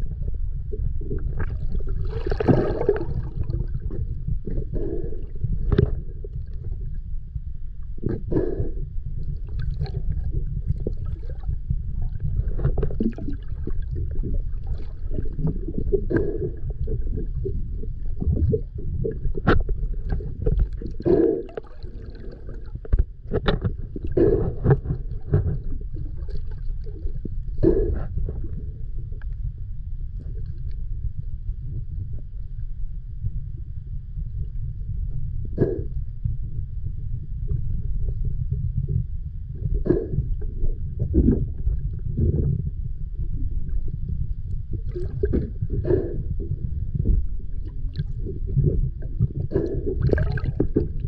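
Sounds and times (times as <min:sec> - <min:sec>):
low rumble of moving water: 0:00.0 - 0:51.0
gurgling splashes: 0:01.2 - 0:04.1, 0:09.5 - 0:17.4, 0:18.2 - 0:27.8, 0:47.6 - 0:51.0.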